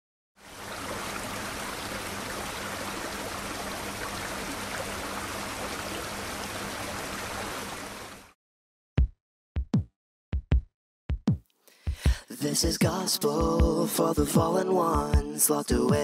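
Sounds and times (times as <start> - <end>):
sea water rushing: 0.4 - 8.3.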